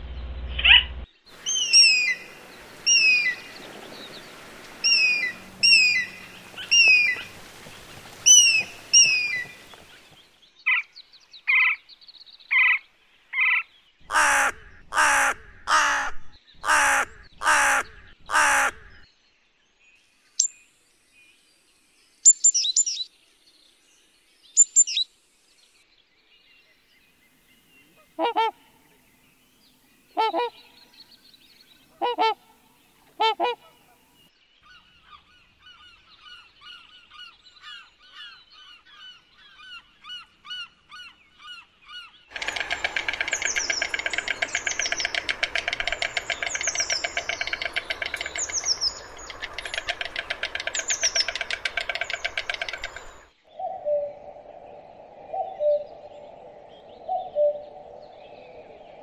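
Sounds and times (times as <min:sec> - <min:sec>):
high bird chirps: 0:00.4 - 0:03.6, 0:42.3 - 0:53.3
loud harsh bird calls: 0:13.4 - 0:19.0, 0:37.0 - 0:53.4
fast bird chatter: 0:42.3 - 0:53.3.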